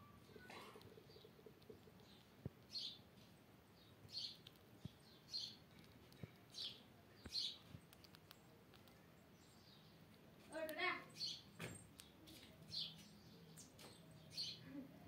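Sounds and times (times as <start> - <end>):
squirrel chirping: 0.0 - 14.6
faint clicks: 7.2 - 9.0.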